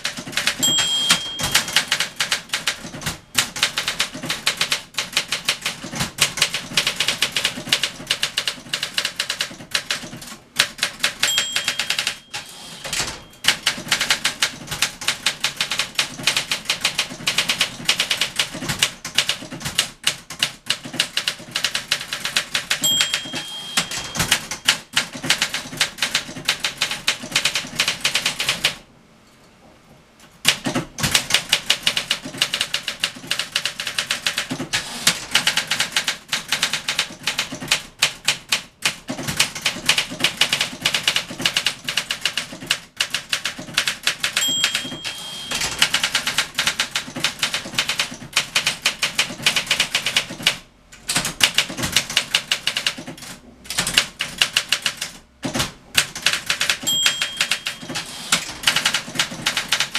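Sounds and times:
typewriter keys clacking: 0.0s - 28.8s, 30.5s - 59.9s
typewriter margin bell: 0.3s - 4.1s, 11.0s - 14.5s, 22.6s - 25.8s, 44.1s - 48.0s, 56.2s - 59.9s.

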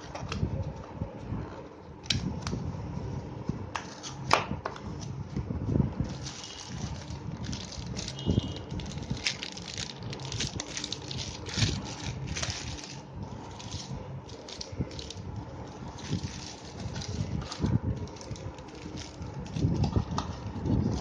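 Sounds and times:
plastic bag crinkling: 6.0s - 21.0s.

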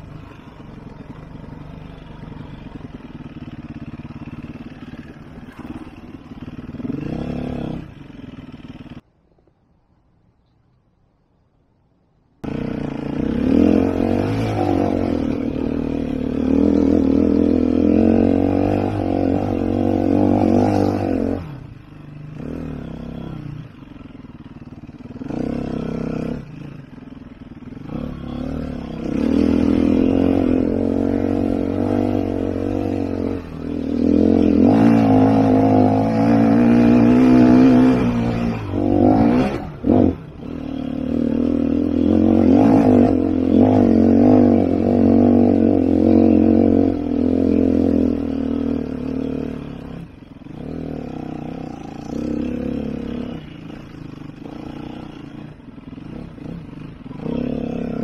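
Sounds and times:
dirt bike engine revving: 0.0s - 9.0s, 12.4s - 58.0s.

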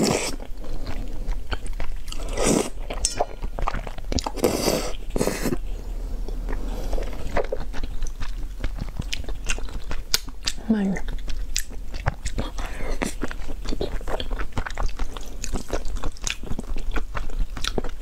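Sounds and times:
noodles being slurped: 0.0s - 3.0s
wet chewing and mouth clicks: 0.0s - 18.0s.

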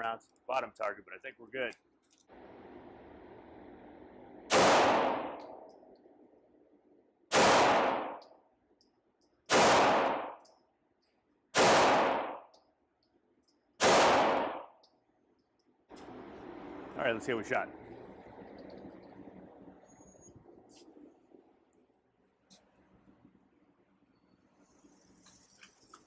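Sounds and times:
pistol shots echoing indoors: 4.5s - 5.8s, 7.3s - 8.3s, 9.5s - 10.5s, 11.5s - 12.6s, 13.8s - 14.8s.

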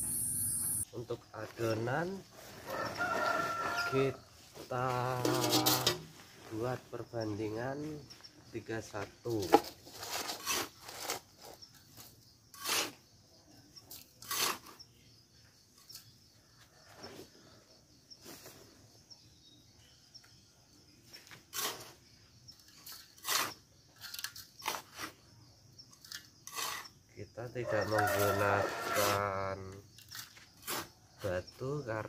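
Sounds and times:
trowel scraping sand: 9.3s - 13.1s, 13.9s - 15.0s, 21.2s - 25.4s, 26.0s - 27.0s, 27.8s - 29.4s, 30.0s - 31.3s.

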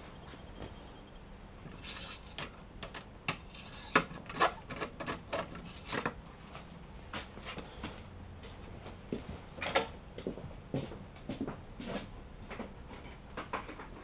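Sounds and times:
tools knocking and clicking: 2.3s - 6.2s.

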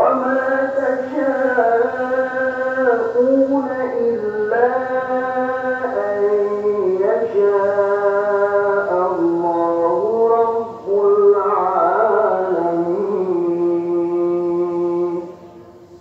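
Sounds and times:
person chanting: 0.0s - 16.0s.

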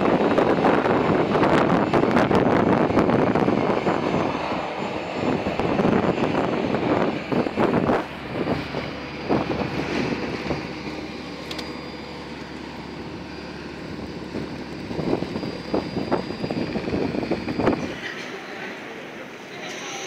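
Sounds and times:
parked airliner whining hum: 0.0s - 20.0s.

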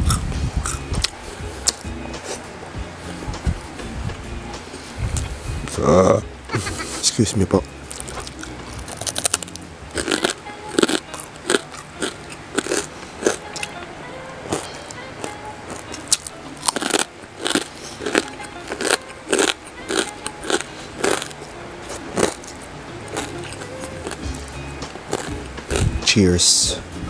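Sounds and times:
chewing and crunching food: 0.0s - 2.4s, 7.8s - 13.8s, 14.5s - 26.0s
quiet background music: 0.0s - 27.0s.

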